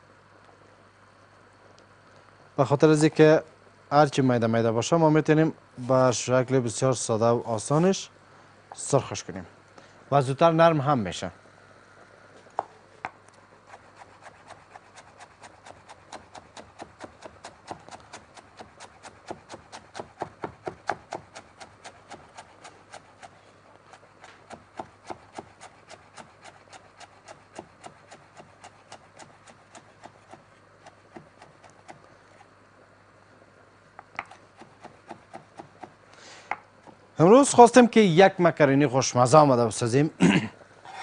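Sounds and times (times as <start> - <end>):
knife chopping on wooden board: 13.7 - 32.0, 34.1 - 37.0.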